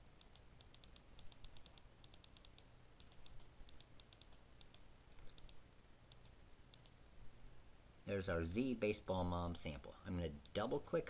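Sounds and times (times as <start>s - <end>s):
low steady hum: 0.0s - 11.0s
computer mouse clicks: 0.2s - 7.0s.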